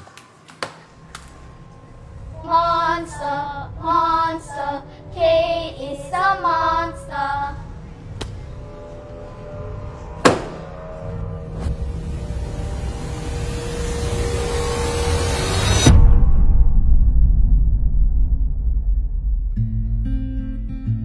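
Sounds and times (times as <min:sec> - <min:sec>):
children chanting: 0:02.4 - 0:07.7
book slammed shut on table: 0:10.2 - 0:10.7.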